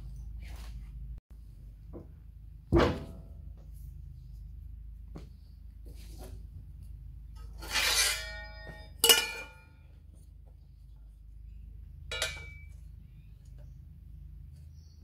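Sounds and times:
steel square clanking on metal: 0:07.4 - 0:09.7
sheet steel ringing scrape: 0:07.4 - 0:09.9
sharp ringing metal clank: 0:07.9 - 0:09.8, 0:12.1 - 0:12.8.

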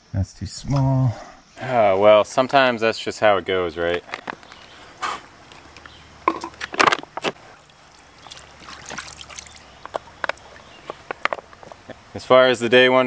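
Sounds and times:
water sloshing in plastic container: 0:06.3 - 0:11.6.

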